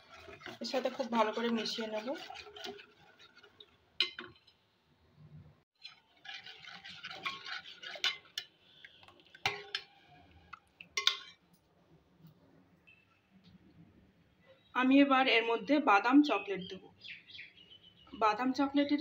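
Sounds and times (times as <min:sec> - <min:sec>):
spoon stirring wet mixture: 0:00.0 - 0:04.6, 0:05.8 - 0:11.6
spoon clinking against bowl: 0:11.0 - 0:11.4.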